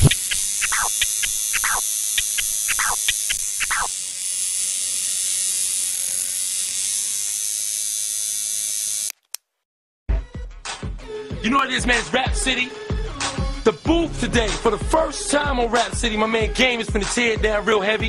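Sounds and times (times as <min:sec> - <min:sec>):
tattoo machine buzzing: 0:00.0 - 0:09.2.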